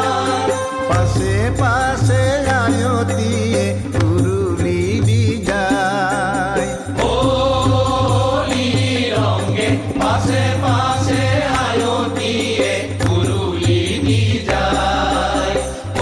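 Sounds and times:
hand cymbals: 0.0s - 16.0s
hand drum: 0.0s - 16.0s
male chorus chanting: 6.6s - 16.0s.

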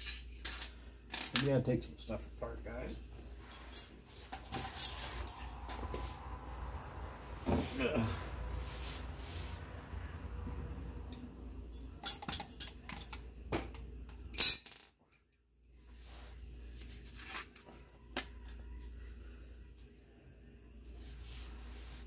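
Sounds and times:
metal hand tools clinking: 11.7s - 13.2s, 14.3s - 15.4s.

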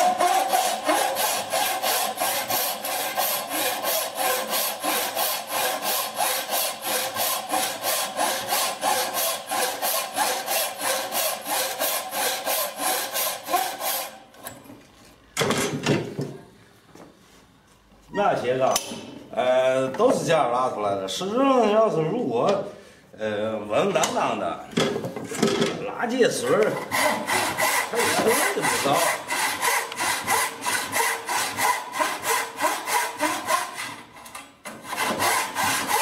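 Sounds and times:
hand saw cutting wood: 0.0s - 14.3s, 26.4s - 36.0s
wood workpiece scraping: 26.4s - 36.0s.

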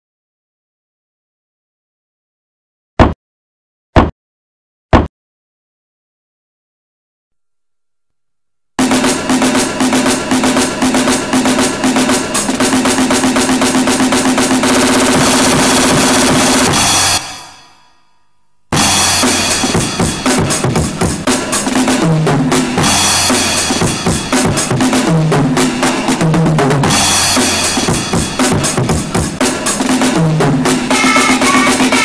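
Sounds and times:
music with heavy drum beat: 8.8s - 17.6s, 18.7s - 32.0s.

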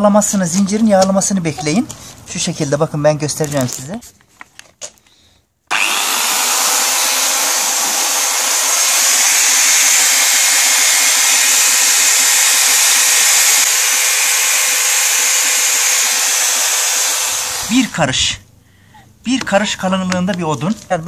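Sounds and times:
electric chainsaw running: 5.7s - 17.9s.

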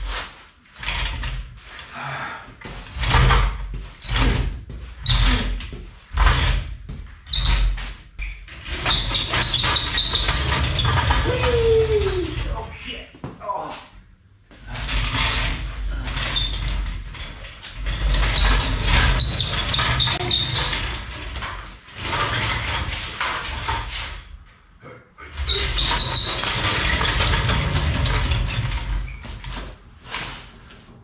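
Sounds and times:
mechanical rattling and grinding: 14.7s - 24.2s, 25.3s - 30.3s.

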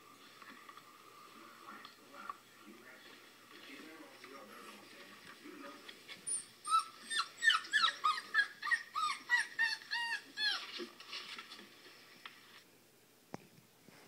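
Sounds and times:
puppies whimpering: 6.1s - 10.8s.

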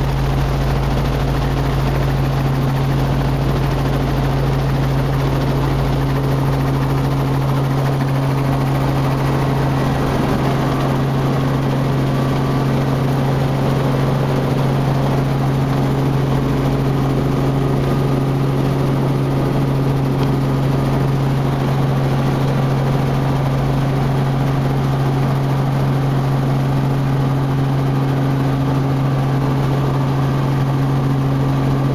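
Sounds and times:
helicopter engine and rotors droning: 0.0s - 31.9s.

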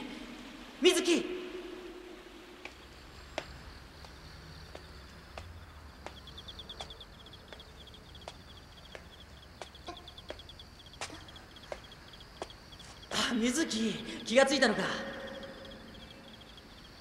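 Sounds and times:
crickets chirping: 0.0s - 17.0s
footsteps: 2.6s - 13.2s.

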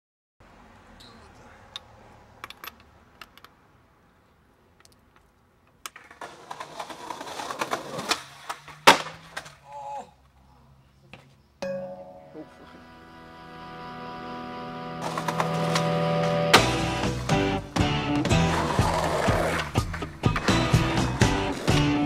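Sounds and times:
skateboard wheels rolling on concrete: 0.4s - 10.4s, 12.6s - 22.0s
skateboard slam: 5.9s - 9.6s, 15.0s - 17.3s
person crying out: 9.6s - 10.2s.

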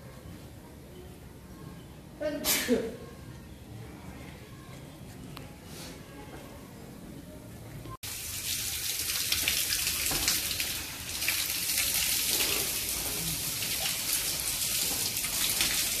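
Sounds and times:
water running from taps: 8.0s - 16.0s.

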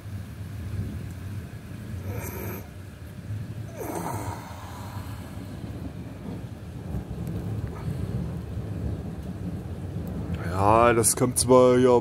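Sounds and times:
thunder rumbling: 0.0s - 12.0s.

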